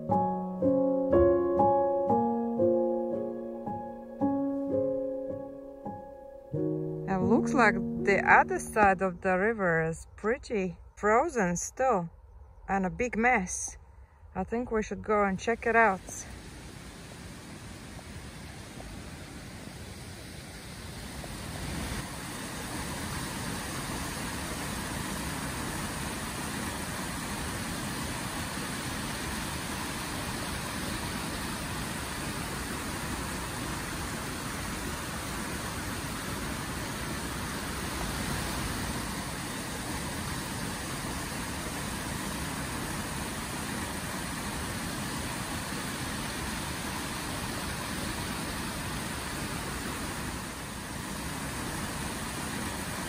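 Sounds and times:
stream rushing over rapids: 0:15.9 - 0:53.0.

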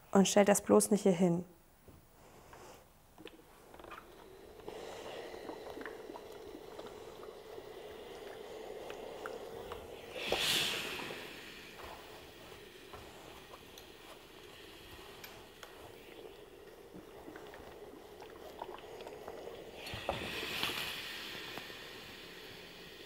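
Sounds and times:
iron steam hiss: 0:04.2 - 0:18.2, 0:19.2 - 0:23.0.

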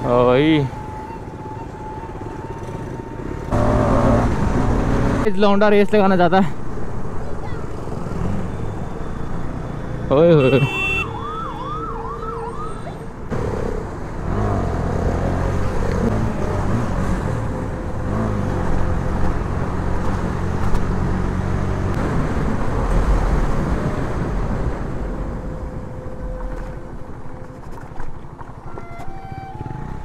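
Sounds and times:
siren wailing: 0:00.0 - 0:03.7, 0:10.5 - 0:13.1
motorcycle engine revving: 0:02.8 - 0:05.2.

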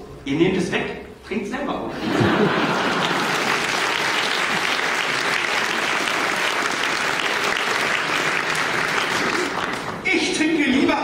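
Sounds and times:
audience applauding: 0:02.2 - 0:10.3.

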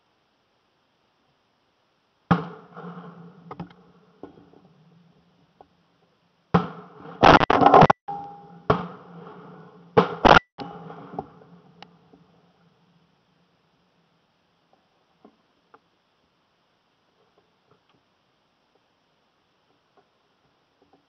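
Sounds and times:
loud distorted noise bursts: 0:06.6 - 0:12.6.

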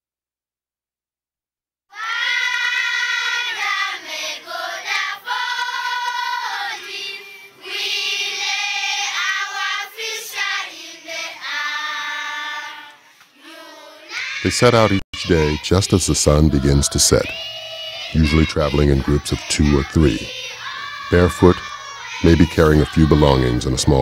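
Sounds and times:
children singing: 0:01.9 - 0:24.0.

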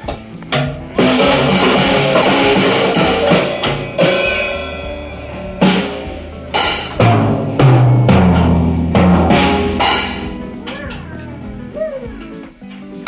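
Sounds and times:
drum kit hits: 0:00.0 - 0:13.0
cymbal crashes ringing: 0:01.0 - 0:10.8.

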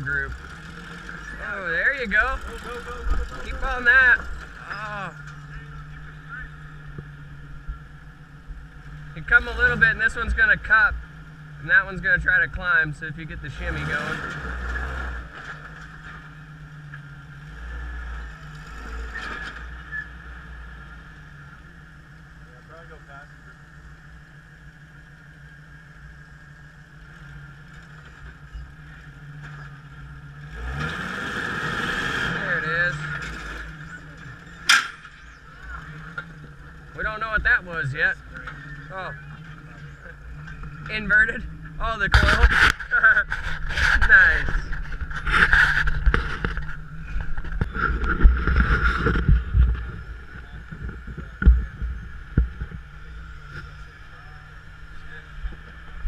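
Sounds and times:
engine running and revving: 0:00.0 - 0:56.0
wind rumbling on microphone: 0:41.5 - 0:53.8.

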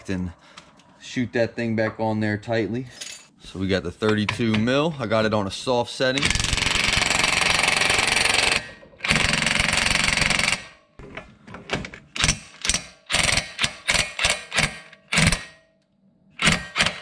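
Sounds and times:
impact wrench hammering: 0:06.2 - 0:10.8, 0:12.2 - 0:15.6, 0:16.4 - 0:17.0.

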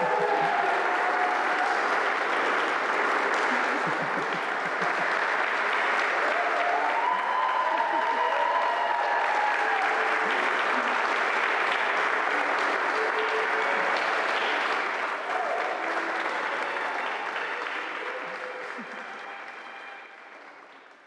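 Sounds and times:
voices in crowd: 0:00.0 - 0:04.8
crowd applauding: 0:00.0 - 0:21.0.

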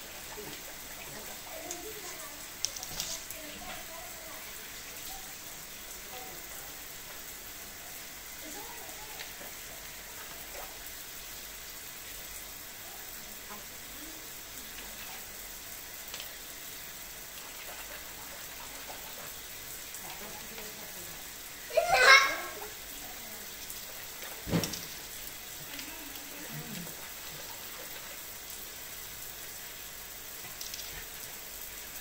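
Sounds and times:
faucet spray hissing into sink: 0:13.1 - 0:27.8.

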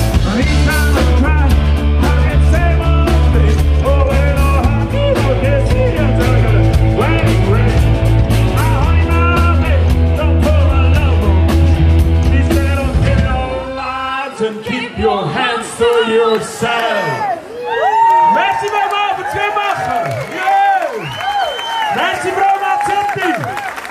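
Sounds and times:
live rock band playing: 0:00.0 - 0:14.2
person singing: 0:00.0 - 0:15.4.

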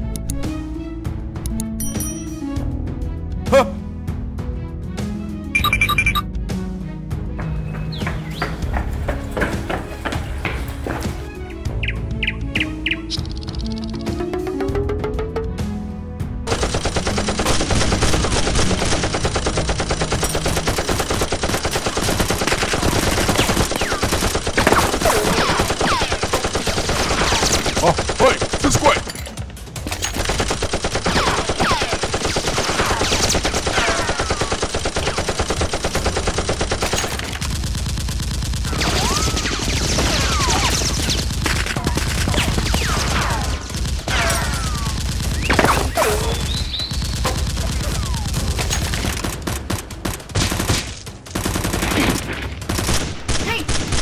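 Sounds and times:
rapid machine-gun fire: 0:16.5 - 0:29.1, 0:30.1 - 0:54.0.

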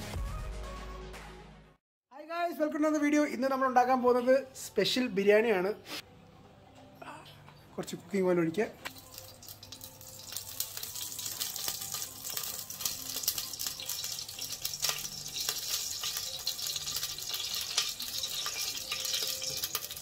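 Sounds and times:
oil sizzling in a hot pan: 0:08.9 - 0:20.0.

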